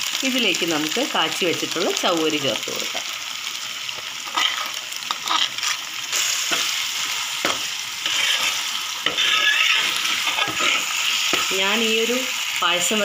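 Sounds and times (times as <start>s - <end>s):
food sizzling in a pan: 0.0s - 13.0s
spoon scraping and clinking pan: 7.4s - 11.4s.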